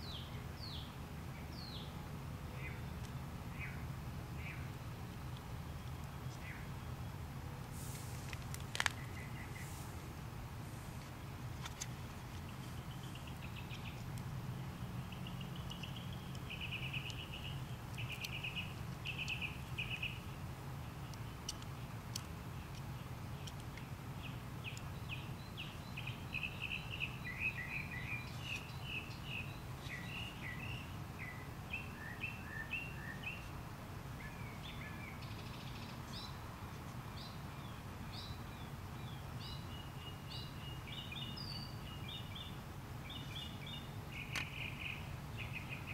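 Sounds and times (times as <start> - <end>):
steady low hum: 0.0 - 45.9
birds chirping trilled phrases: 12.5 - 33.5.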